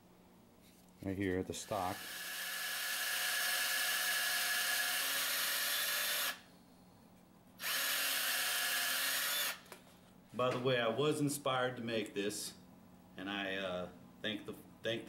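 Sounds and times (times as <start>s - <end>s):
electric power drill boring: 1.6s - 6.4s, 7.6s - 9.6s.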